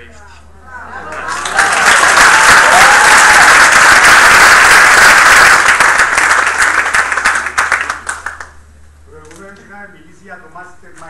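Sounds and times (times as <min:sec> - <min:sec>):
audience applauding: 0:01.0 - 0:08.6.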